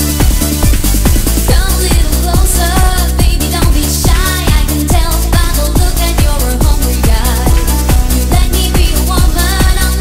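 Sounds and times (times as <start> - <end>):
kick drum: 0.0 - 10.0
synth bass: 0.0 - 10.0
synth melody: 6.8 - 8.9.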